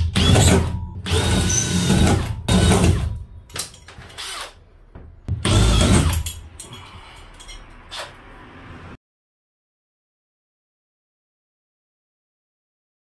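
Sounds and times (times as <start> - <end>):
cordless drill drilling: 0.0 - 3.1, 4.0 - 4.6, 5.4 - 6.3.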